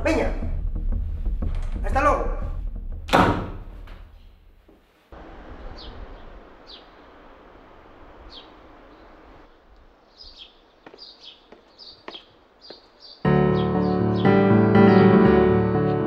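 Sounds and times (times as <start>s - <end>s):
small birds chirping: 5.2s - 15.0s.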